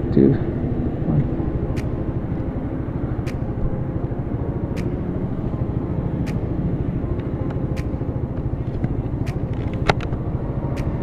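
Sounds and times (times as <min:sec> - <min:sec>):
motorcycle engine running: 0:00.0 - 0:11.0
sharp faint tick: 0:03.2 - 0:03.4, 0:06.2 - 0:06.5.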